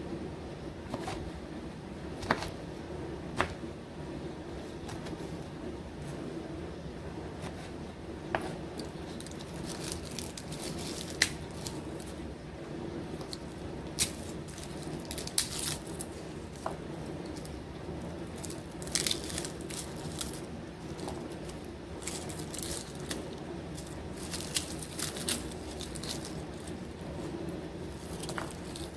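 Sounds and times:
steady low hum: 0.0s - 28.9s
garlic skins crinkling: 8.8s - 12.3s, 13.1s - 28.9s.

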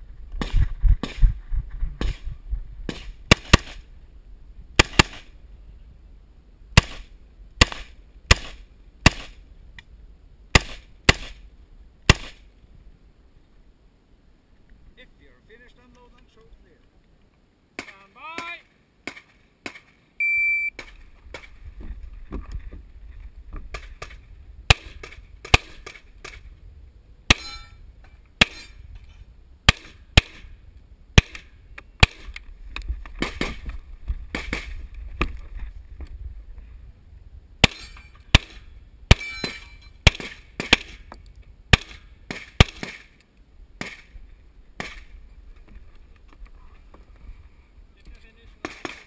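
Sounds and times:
pistol shots: 4.8s - 5.3s, 12.1s - 12.4s, 37.6s - 41.0s
shot timer beep: 20.2s - 20.7s.

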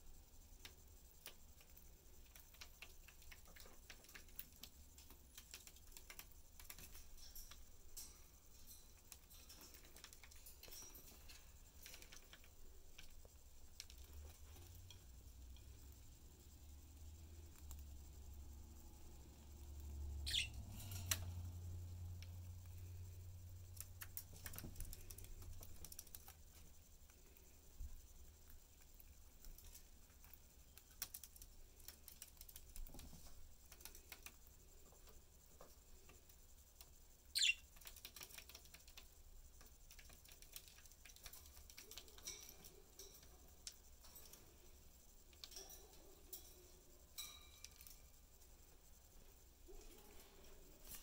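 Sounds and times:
beaks and feet tapping perches: 0.5s - 21.5s, 22.2s - 48.6s
high falling bird chirp: 20.2s - 20.6s, 37.3s - 37.7s.

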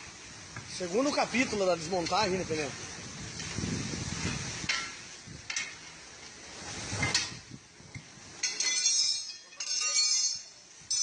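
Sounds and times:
metallic clinks: 8.4s - 11.0s.

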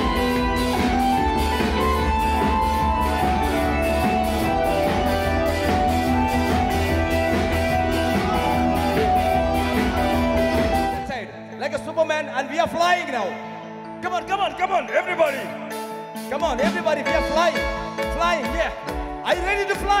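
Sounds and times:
heavy bass: 0.0s - 11.0s
steady beat: 0.0s - 11.0s
electric guitar line: 0.0s - 14.0s, 15.1s - 20.0s.

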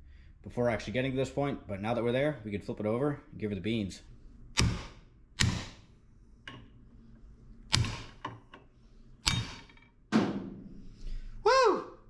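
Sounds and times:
hammer striking metal: 4.6s - 5.8s, 7.7s - 8.4s, 9.2s - 10.5s.

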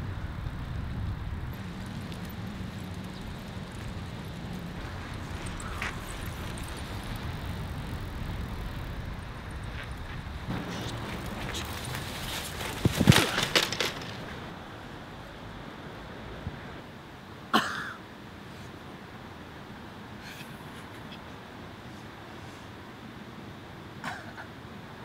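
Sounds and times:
wind noise: 0.0s - 15.1s
bicycle rolling on pavement: 0.0s - 15.9s
faint ticks: 1.5s - 10.9s.

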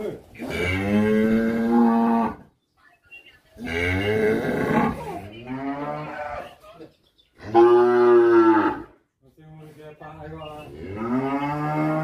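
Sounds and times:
cattle mooing: 0.4s - 2.4s, 3.6s - 6.5s, 7.4s - 8.9s, 10.7s - 12.0s.

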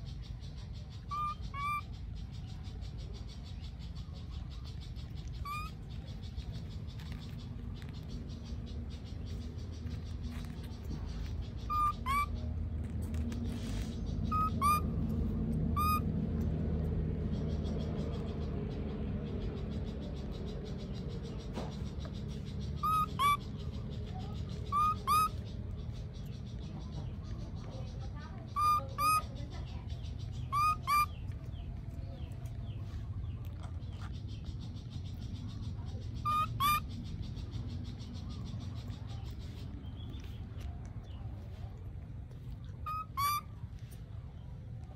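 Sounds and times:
low steady rumble: 0.0s - 44.9s
steady low hum: 0.0s - 44.9s
whistle-like animal calls: 14.3s - 14.9s, 15.7s - 16.1s, 22.8s - 23.4s, 24.7s - 25.4s, 30.5s - 31.2s, 36.2s - 36.9s, 42.8s - 43.6s
short high animal calls: 42.8s - 43.6s.

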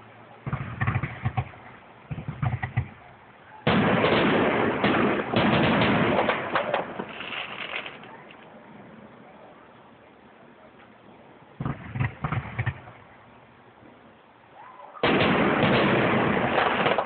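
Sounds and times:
dense fireworks crackling: 0.0s - 8.3s, 11.1s - 14.1s, 15.0s - 17.0s
fireworks bangs: 0.0s - 8.4s, 11.6s - 13.3s, 15.0s - 17.0s.

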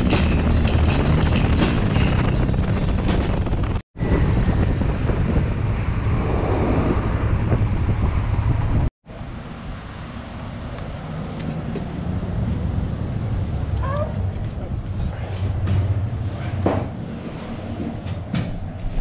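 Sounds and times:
motorcycle engine running: 0.0s - 3.8s
wind buffeting microphone: 0.0s - 19.0s.

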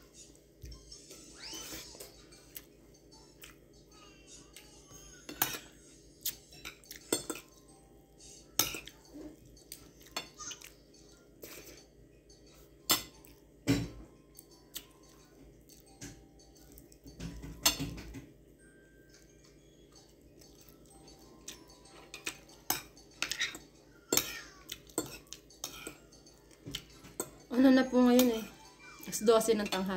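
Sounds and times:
cutlery clinking on a plate: 5.2s - 7.5s, 12.8s - 14.0s, 15.9s - 18.3s, 21.9s - 27.5s.

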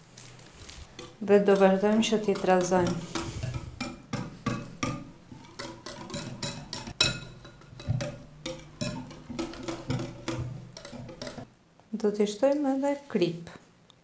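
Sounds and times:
whisk clicking against glass bowl: 0.9s - 11.5s
whisk clinking on glass: 0.9s - 11.5s.

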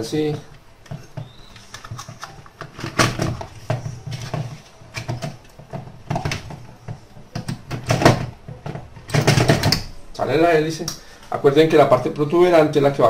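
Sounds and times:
plastic parts clicking and knocking: 0.3s - 9.9s.

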